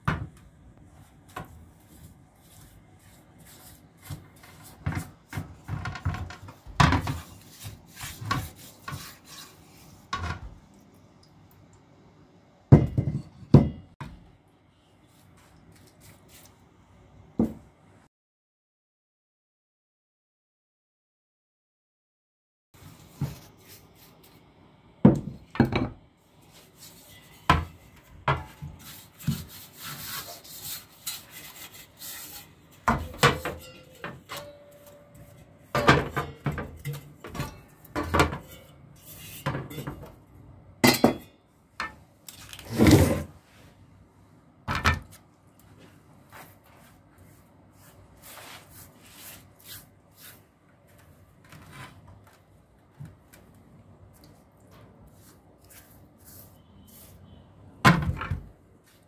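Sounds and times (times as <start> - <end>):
paintbrush scrubbing metal: 1.5 - 5.3, 6.4 - 10.1, 26.5 - 39.5.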